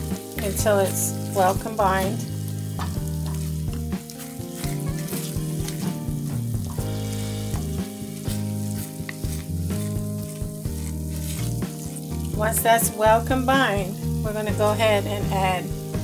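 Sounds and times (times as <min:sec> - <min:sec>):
wooden spatula scraping a pot: 0:00.0 - 0:06.0, 0:06.6 - 0:12.7
sauce sizzling in a pot: 0:00.0 - 0:16.0
soft background music: 0:00.0 - 0:16.0.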